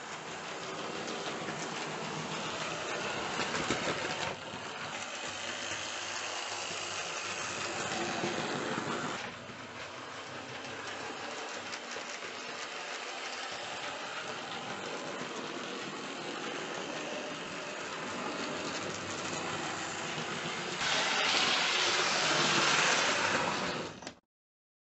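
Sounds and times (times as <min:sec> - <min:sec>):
model train running on track: 0:00.0 - 0:24.0.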